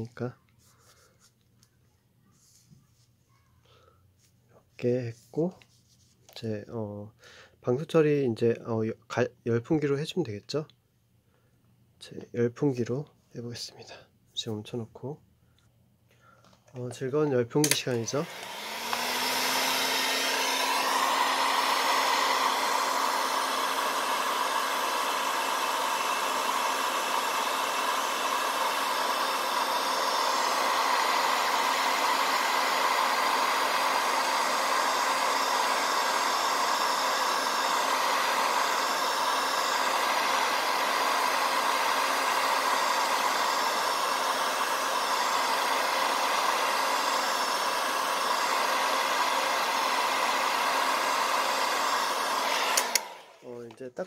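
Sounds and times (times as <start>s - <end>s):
heat gun whirring: 16.8s - 53.6s.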